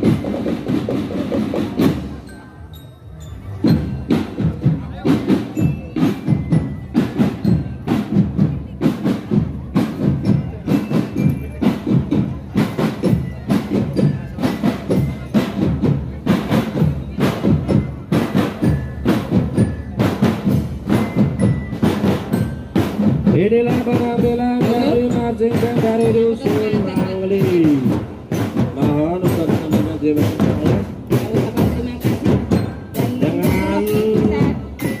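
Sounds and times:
marching band drum beat: 0.0 - 2.3, 3.6 - 35.0.

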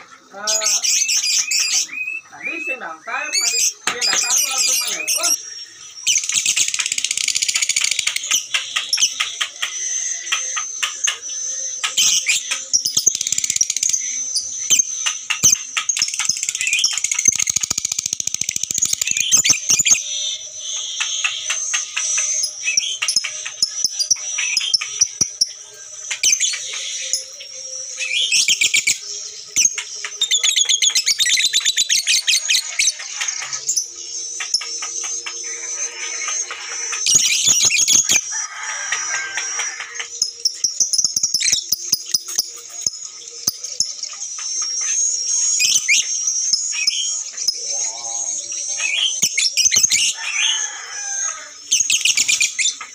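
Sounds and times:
lovebirds chattering: 0.0 - 52.9.

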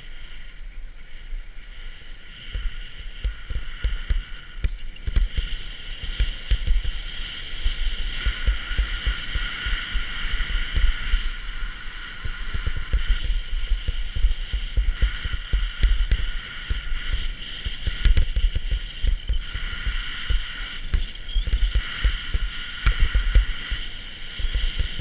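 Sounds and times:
skis sliding on snow: 0.0 - 25.0
wind thumping on microphone: 0.0 - 25.0.

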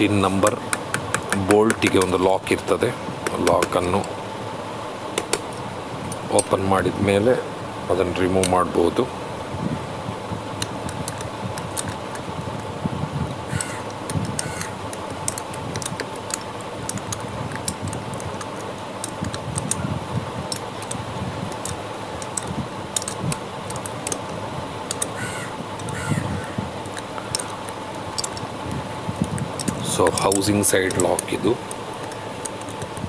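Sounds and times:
steady low hum: 0.0 - 33.0
metal tool clicking and tapping: 0.5 - 2.2, 10.6 - 12.2, 13.5 - 19.8, 20.5 - 24.3, 24.9 - 25.2, 28.2 - 28.5.

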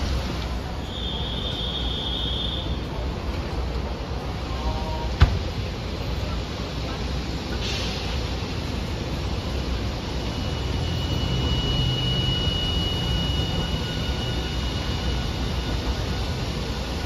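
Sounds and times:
tram rumbling: 0.0 - 17.0
thin high whine: 9.5 - 17.0.

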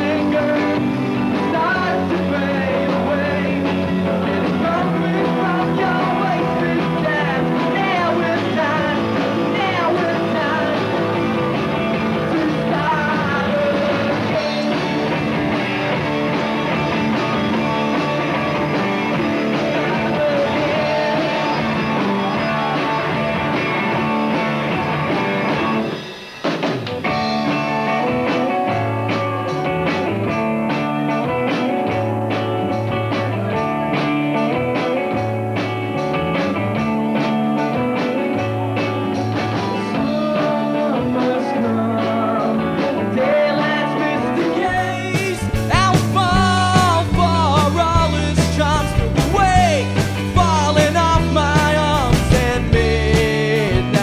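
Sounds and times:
person singing: 0.0 - 15.4, 18.6 - 25.0, 38.0 - 54.0
electric bass: 0.0 - 26.0, 27.0 - 54.0
drum kit: 0.0 - 54.0
electric guitar: 0.0 - 54.0.

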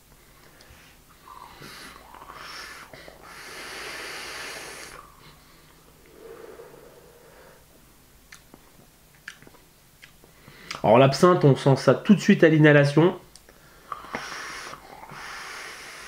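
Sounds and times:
person exhaling vapour: 0.4 - 7.9, 13.7 - 16.0.

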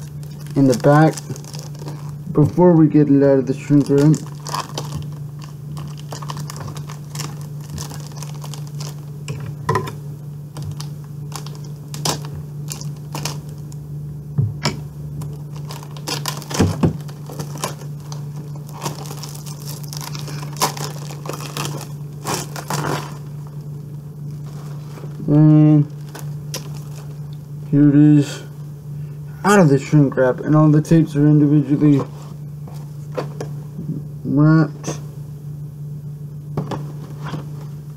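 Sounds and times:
plastic wrap crinkling and tearing: 0.0 - 9.4, 10.5 - 13.8, 15.2 - 23.7, 24.3 - 27.3
steady low hum: 0.0 - 37.9.

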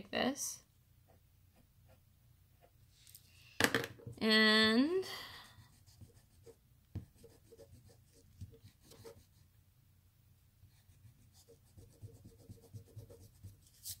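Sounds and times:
pencil scratching on paper: 5.5 - 9.4, 10.7 - 14.0
pencil tapping on paper: 6.9 - 9.2.

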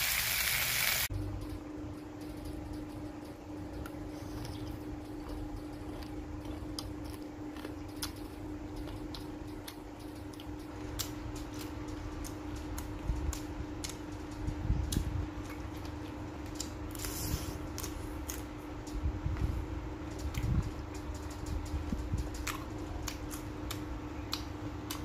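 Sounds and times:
steady low hum: 1.0 - 25.0
chewing: 3.8 - 14.0.

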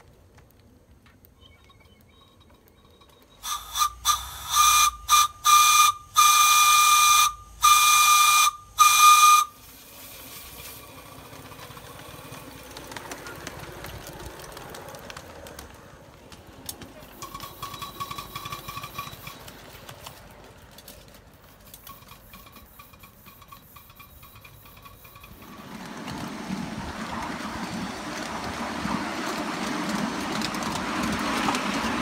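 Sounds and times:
steam locomotive whistle: 3.4 - 9.7.

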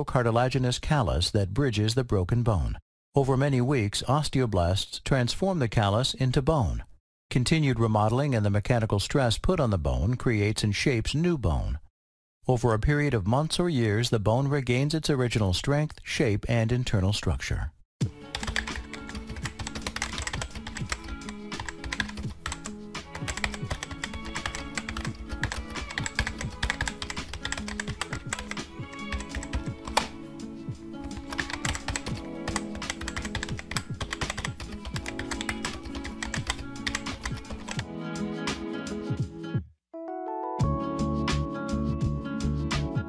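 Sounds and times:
background music with held tones: 18.0 - 43.0
keyboard typing clicks: 18.3 - 30.2, 31.0 - 37.8.

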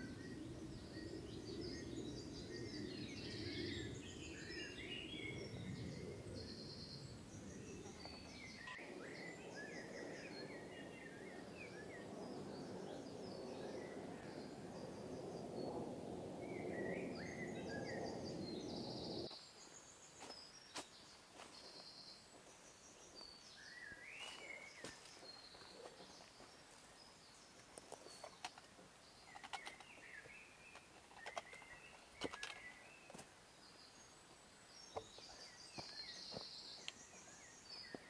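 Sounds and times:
wind noise: 0.0 - 19.3
birds chirping and trilling: 0.0 - 20.8, 21.6 - 38.0.

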